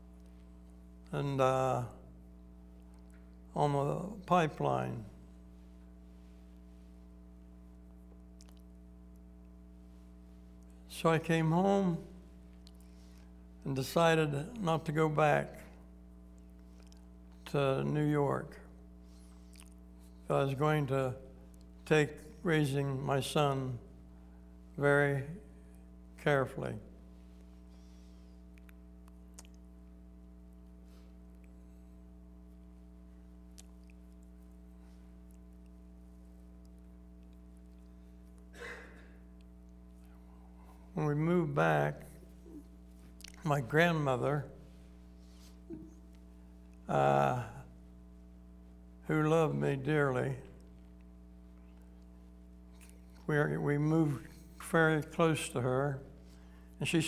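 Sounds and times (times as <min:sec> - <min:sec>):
low electrical hum: 0:00.0 - 0:57.0.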